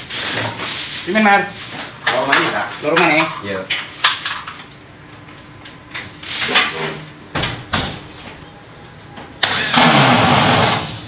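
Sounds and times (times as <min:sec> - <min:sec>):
knocks and clatter of materials: 0:06.0 - 0:08.5
electric drill running: 0:09.4 - 0:11.0.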